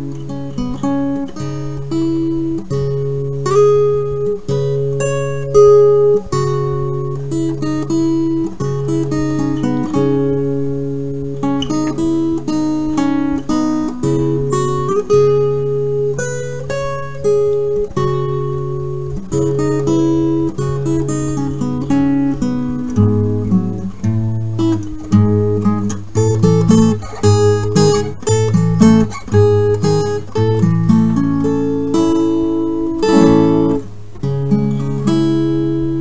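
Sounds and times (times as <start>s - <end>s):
acoustic guitar music: 0.0s - 36.0s.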